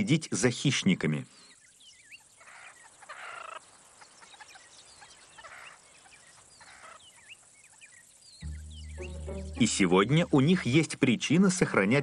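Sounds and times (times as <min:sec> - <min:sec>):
faint bird chirps: 0:01.2 - 0:10.8
bird chattering: 0:08.4 - 0:10.0.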